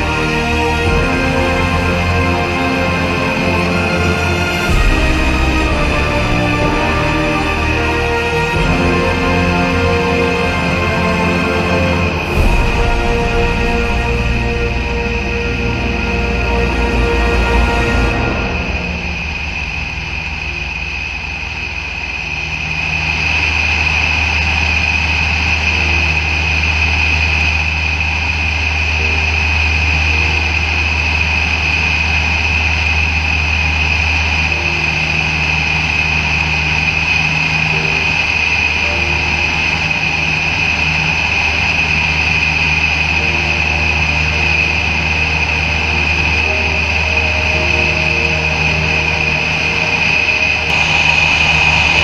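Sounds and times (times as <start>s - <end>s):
aircraft engine drone in cabin: 18.0s - 52.0s.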